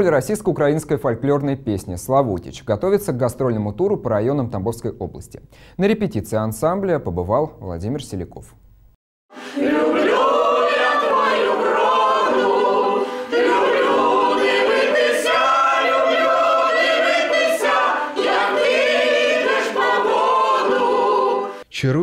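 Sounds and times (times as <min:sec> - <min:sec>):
mixed choir singing a cappella: 0:09.4 - 0:21.6.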